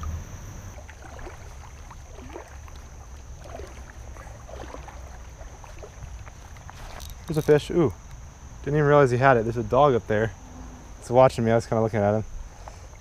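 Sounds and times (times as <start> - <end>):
creek water babbling: 0.0 - 8.8
insect drone: 0.0 - 13.0.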